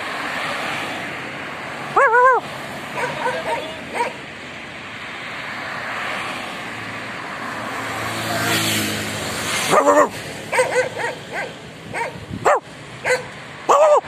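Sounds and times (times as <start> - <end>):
dog barking: 2.0 - 4.2, 9.7 - 14.0
car driving past: 5.0 - 11.4.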